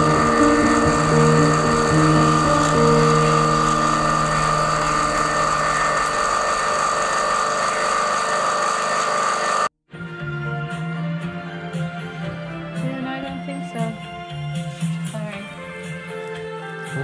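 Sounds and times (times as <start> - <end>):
music: 0.0 - 6.3, 9.9 - 17.0
electric drill mixing paint: 0.0 - 9.7.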